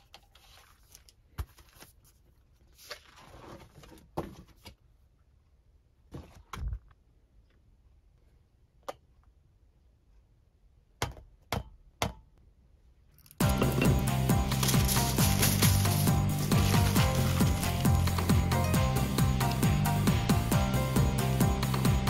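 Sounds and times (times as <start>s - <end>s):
paper rustling: 13.9s - 18.4s.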